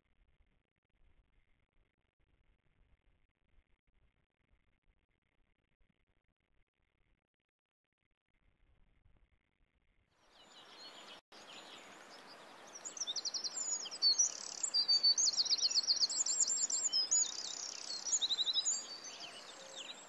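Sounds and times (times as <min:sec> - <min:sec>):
songbirds trilling and chirping: 0:10.4 - 0:20.0
outdoor hiss: 0:10.5 - 0:20.0.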